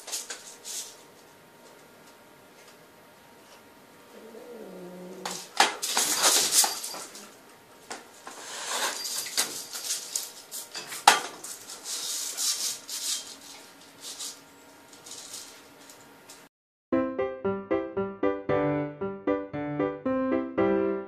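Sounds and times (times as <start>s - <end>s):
metal chain clinking and rattling: 5.8s - 7.3s, 8.7s - 10.9s.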